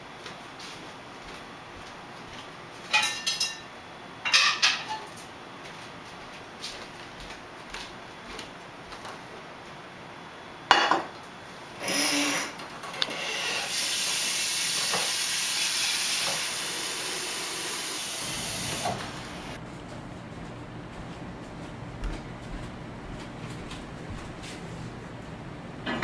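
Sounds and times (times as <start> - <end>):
water running into pot: 13.4 - 19.5.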